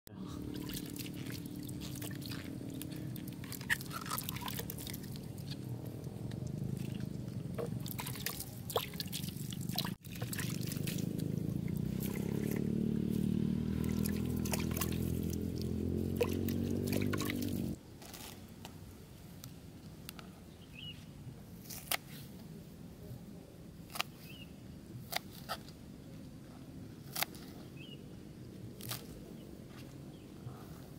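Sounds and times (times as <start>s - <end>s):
water trickling over leaves: 0.4s - 18.4s
water filling a container: 7.8s - 11.0s.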